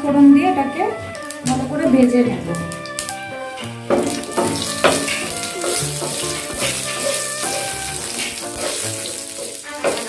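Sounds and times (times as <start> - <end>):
background music: 0.0 - 10.0
spices sizzling in hot oil: 2.4 - 10.0.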